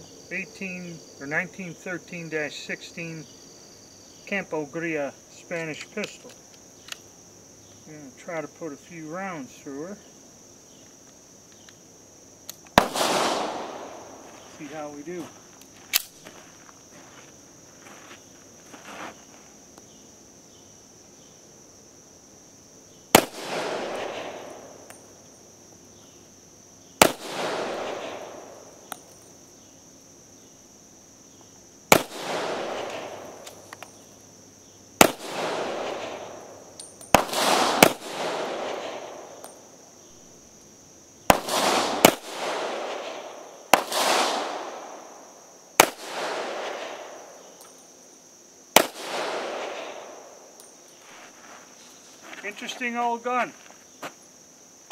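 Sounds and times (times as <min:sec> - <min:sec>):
pistol shots with echo: 0:12.8 - 0:14.2, 0:23.1 - 0:24.8, 0:27.0 - 0:28.6, 0:31.9 - 0:33.4, 0:35.0 - 0:36.4, 0:37.1 - 0:39.4, 0:41.3 - 0:45.1, 0:45.8 - 0:47.2, 0:48.8 - 0:50.3.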